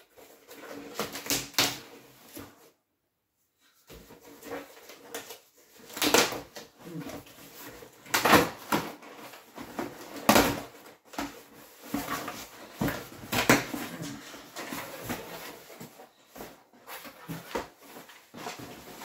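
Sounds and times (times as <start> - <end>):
cardboard rustling and knocks: 3.9 - 19.0.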